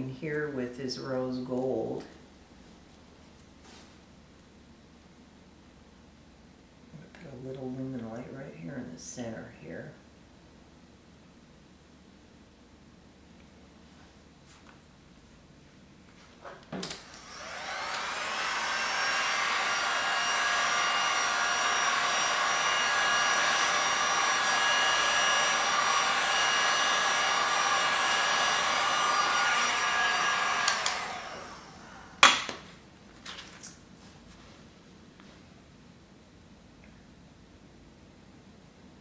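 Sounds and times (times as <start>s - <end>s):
heat gun fan blowing hum: 16.7s - 32.9s
heat gun switch click: 30.6s - 31.0s.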